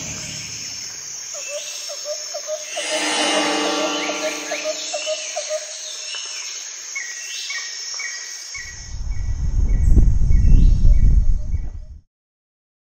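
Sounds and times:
insect-like chirps: 0:02.7 - 0:05.6.

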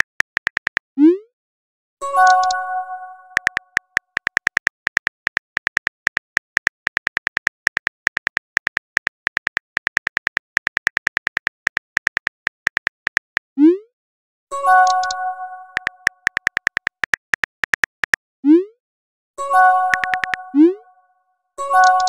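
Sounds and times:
phone keyboard tap clicks: 0:00.0 - 0:00.8, 0:03.4 - 0:13.4, 0:15.8 - 0:18.2, 0:19.9 - 0:20.4
bell-like message chime: 0:02.0 - 0:03.4, 0:14.6 - 0:15.8.

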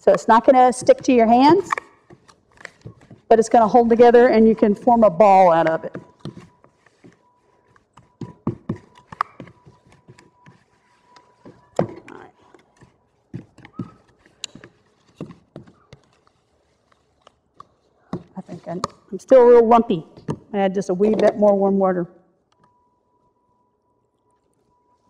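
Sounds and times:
spoon scraping dough in bowl: 0:00.1 - 0:04.7, 0:05.6 - 0:19.1.

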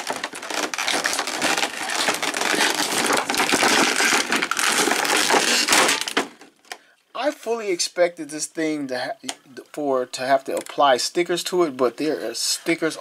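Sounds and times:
plastic packaging crackling: 0:00.0 - 0:06.8.

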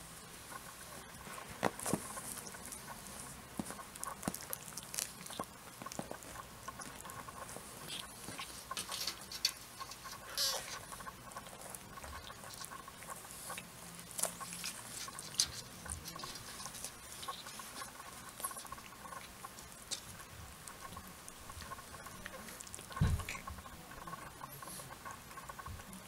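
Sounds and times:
kittens scuffling and patting: 0:00.5 - 0:13.5
small claws scratching: 0:00.5 - 0:25.7.

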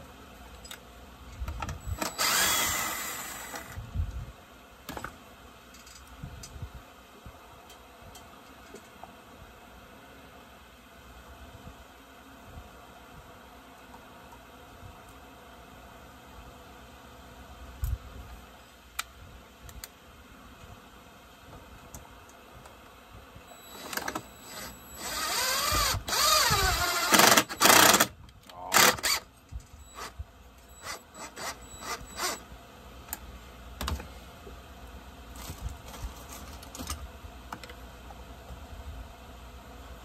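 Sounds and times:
cordless power driver whining: 0:01.5 - 0:03.8, 0:23.5 - 0:32.4.

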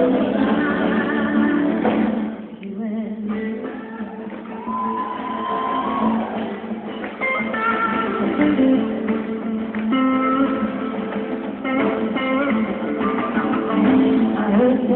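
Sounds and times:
guitar picking and strumming: 0:00.0 - 0:14.9
live band playing: 0:00.0 - 0:14.9.

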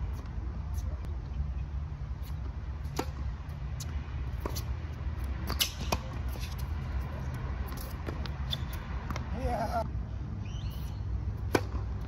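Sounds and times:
tennis ball bouncing: 0:02.4 - 0:09.3, 0:11.3 - 0:12.0
tennis ball struck by racket: 0:02.8 - 0:03.3, 0:04.3 - 0:04.8, 0:05.4 - 0:06.7, 0:11.4 - 0:12.0.

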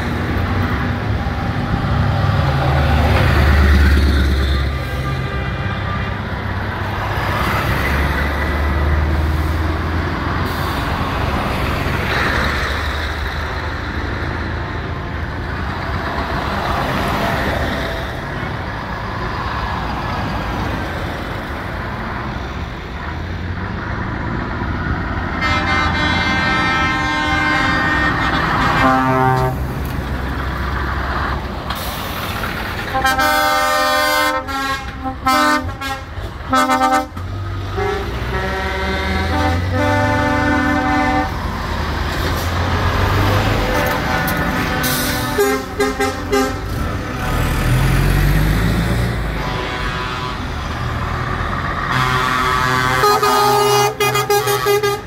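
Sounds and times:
diesel engine rumble: 0:00.0 - 0:55.0
truck horns blasting and tooting: 0:03.0 - 0:09.2, 0:25.3 - 0:30.0, 0:32.8 - 0:41.7, 0:42.7 - 0:47.4, 0:48.7 - 0:55.0
engine revving: 0:46.3 - 0:50.0.

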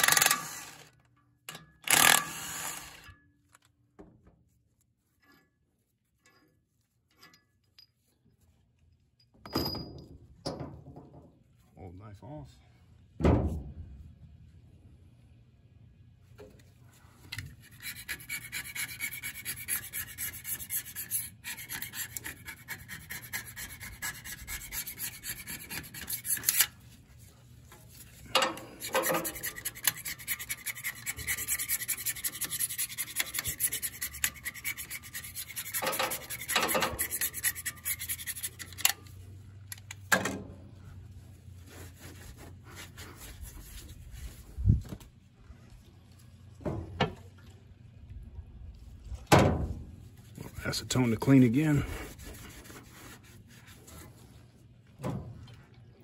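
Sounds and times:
hand scraper scraping steel: 0:17.3 - 0:39.2, 0:50.4 - 0:54.3.

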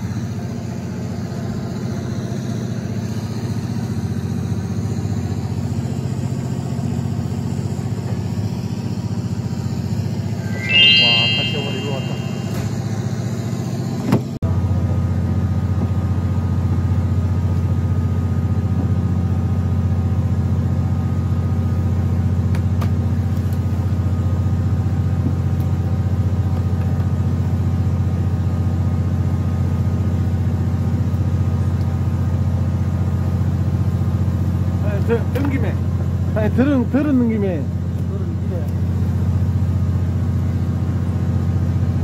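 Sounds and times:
short click: 0:10.6 - 0:12.8.

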